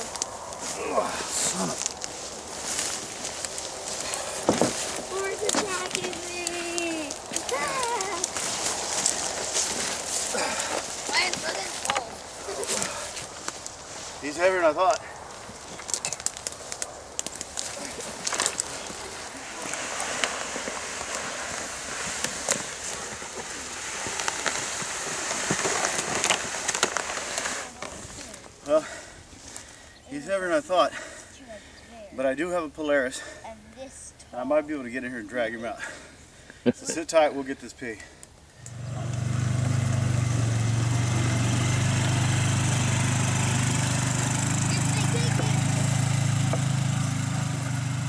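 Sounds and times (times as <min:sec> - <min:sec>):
twigs snapping: 0:00.0 - 0:14.2, 0:14.9 - 0:28.6
rustling of brush and leaves: 0:00.0 - 0:48.0
utility vehicle engine running: 0:38.7 - 0:48.0.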